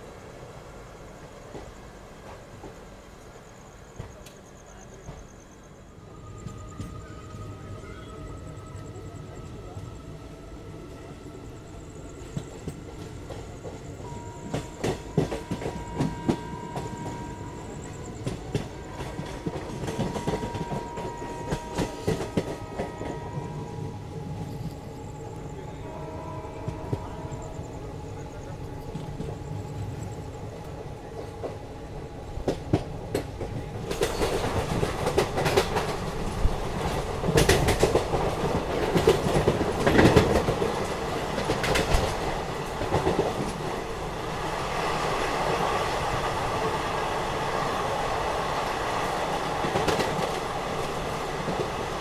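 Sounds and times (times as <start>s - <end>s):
rumble of track noise: 0.0s - 52.0s
train wheels clickety-clack: 1.4s - 3.0s, 3.9s - 5.5s, 11.8s - 24.8s, 32.3s - 52.0s.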